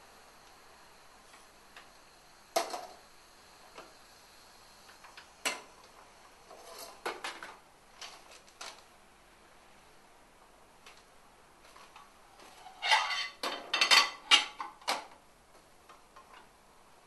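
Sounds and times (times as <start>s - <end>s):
metal pans clanking on grates: 12.6s - 14.8s
pans knocking and scraping: 12.6s - 15.1s.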